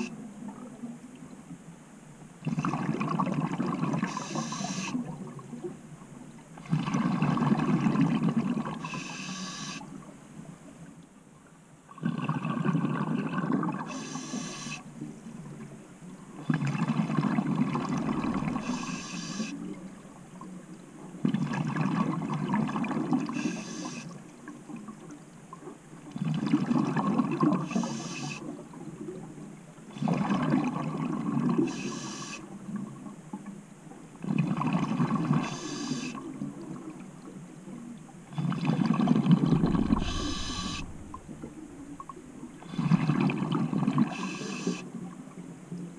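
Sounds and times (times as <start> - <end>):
exhaled bubbles underwater: 2.4 - 5.9, 6.5 - 10.7, 11.9 - 33.6, 34.2 - 45.9
regulator inhalation hiss: 4.0 - 5.0, 8.8 - 9.8, 13.9 - 14.8, 18.5 - 19.6, 23.3 - 24.1, 27.6 - 28.4, 31.7 - 32.4, 35.4 - 36.2, 39.6 - 41.2, 44.1 - 44.8.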